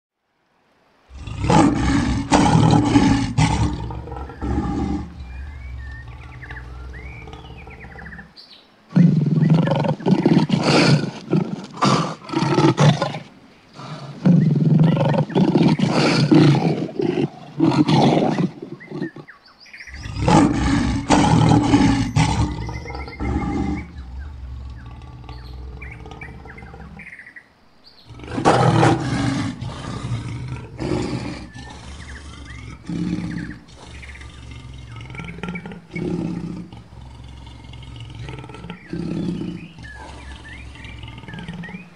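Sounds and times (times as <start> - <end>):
lion roaring: 1.1 - 8.3, 8.9 - 19.2, 19.9 - 27.2, 28.1 - 41.9
faint bird chirps: 3.9 - 8.8, 18.7 - 28.2, 37.5 - 41.9.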